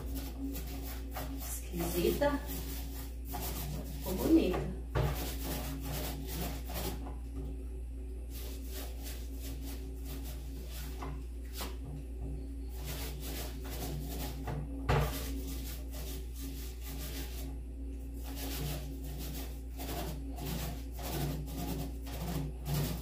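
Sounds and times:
paintbrush strokes on wood: 0.0s - 7.0s, 8.3s - 11.8s, 12.7s - 23.0s.

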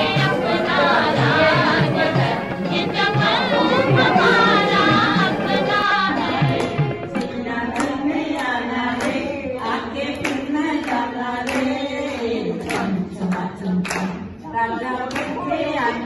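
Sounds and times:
people singing together: 0.0s - 16.0s
hand claps: 6.5s - 9.2s, 10.1s - 14.4s, 15.1s - 15.4s.

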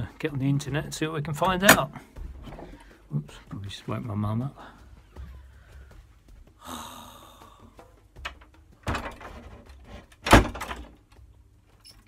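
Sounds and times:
door shutting thunk: 8.2s - 9.5s, 10.2s - 11.0s.

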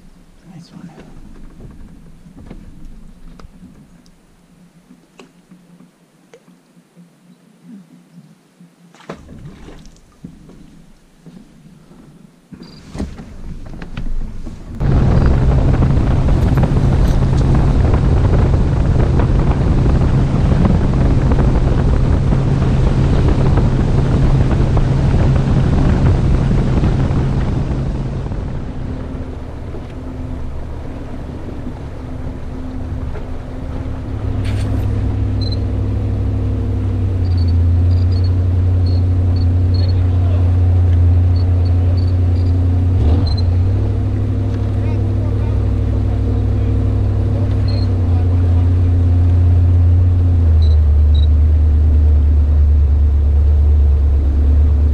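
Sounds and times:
outboard motor running: 0.0s - 5.9s, 9.1s - 54.9s
wind and water rushing: 0.0s - 54.9s.

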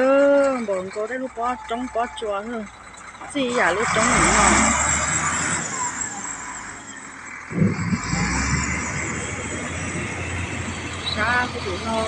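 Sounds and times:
diesel vehicle idling: 0.0s - 12.0s
rushing noise: 7.5s - 11.6s.

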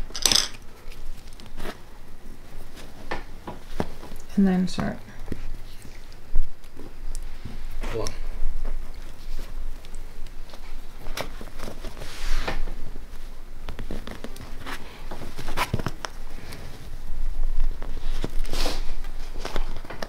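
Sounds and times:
fabric rustling: 0.0s - 4.4s, 8.5s - 20.0s.

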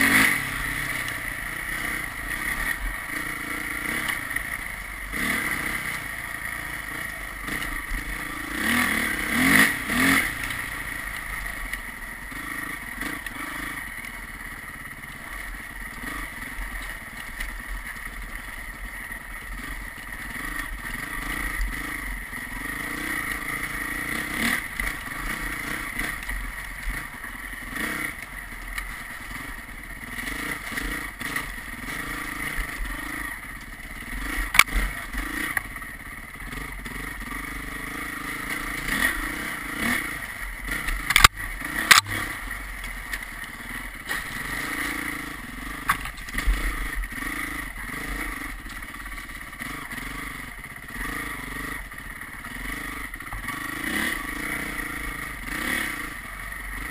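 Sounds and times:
vehicle engine running: 0.0s - 56.9s
sharp clicks: 34.4s - 34.9s, 40.8s - 43.4s.

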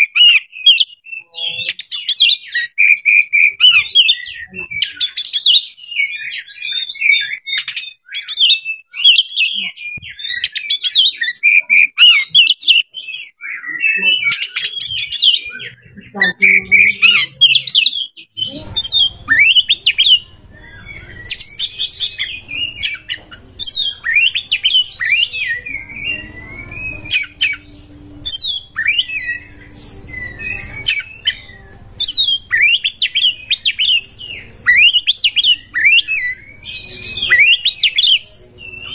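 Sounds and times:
songbird singing whistles and trills: 0.0s - 38.9s
faint low hum: 14.0s - 38.9s.

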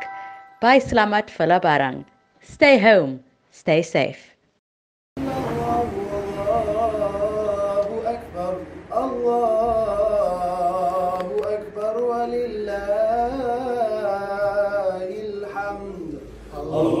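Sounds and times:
man chanting melodically: 5.2s - 17.0s.

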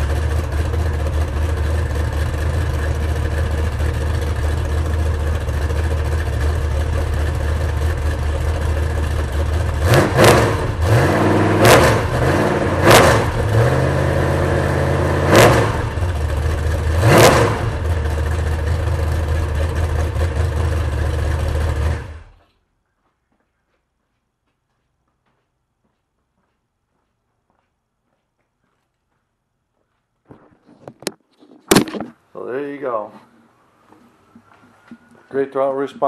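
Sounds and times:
engine idling and revving: 0.0s - 22.4s.

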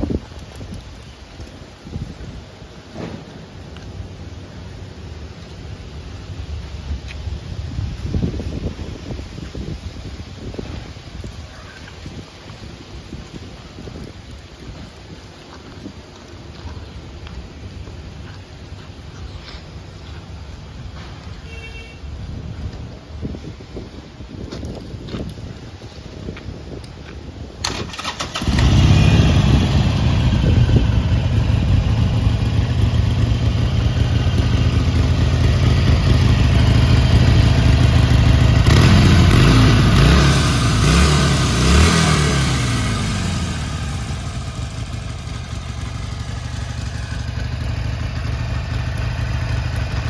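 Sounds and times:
motorcycle engine starting and idling: 27.6s - 50.0s
motorcycle throttle revs: 28.0s - 50.0s.

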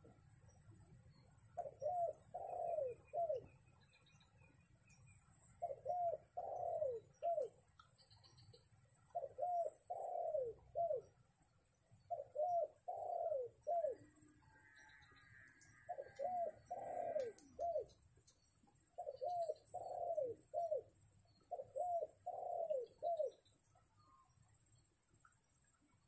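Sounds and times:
dove cooing: 1.6s - 3.6s, 5.5s - 11.2s, 12.0s - 14.3s, 15.5s - 18.0s, 18.9s - 24.2s.

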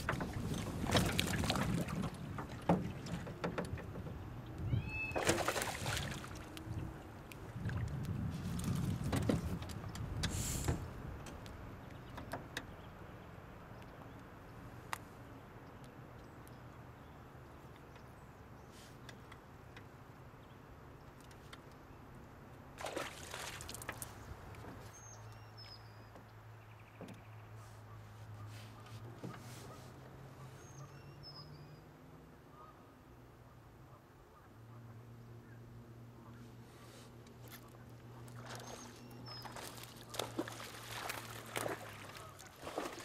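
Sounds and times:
fish splashing in water: 5.1s - 6.6s, 22.8s - 24.1s, 38.2s - 43.0s.

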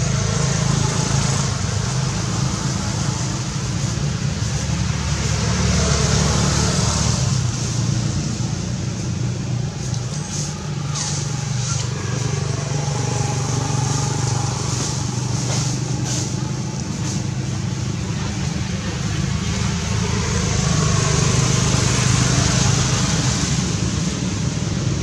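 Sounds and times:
vehicle engine hum: 0.0s - 25.0s.

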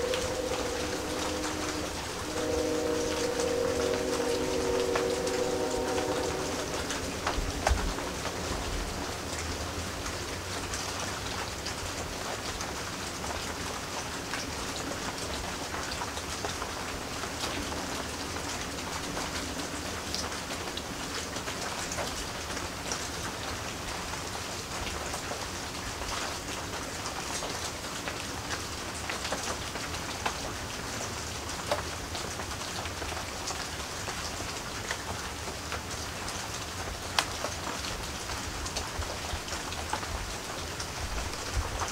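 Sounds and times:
rain pattering: 0.0s - 41.9s.

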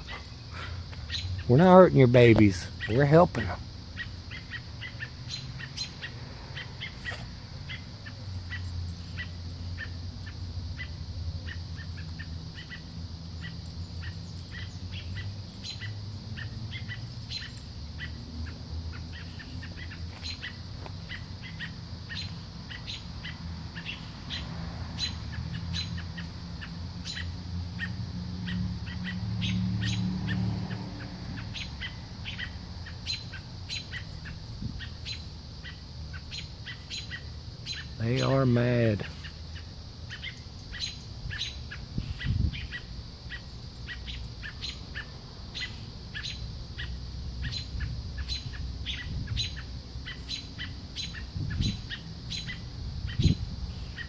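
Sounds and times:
robins alarm calls: 31.0s - 54.0s.

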